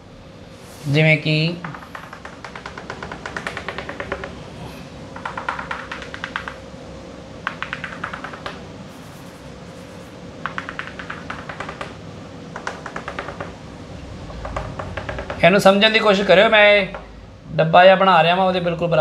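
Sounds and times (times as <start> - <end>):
chalk tapping on blackboard: 1.6 - 4.4, 5.2 - 6.6, 7.4 - 13.6, 14.3 - 15.5.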